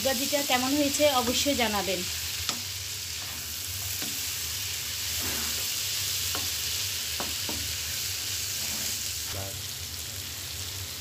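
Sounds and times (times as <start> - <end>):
food sizzling in oil: 0.0 - 11.0
wooden spatula scraping pan: 5.1 - 5.8.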